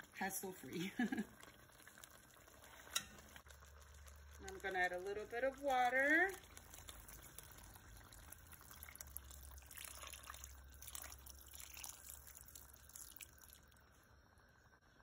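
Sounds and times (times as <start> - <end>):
water trickling into a pot: 0.0 - 15.0.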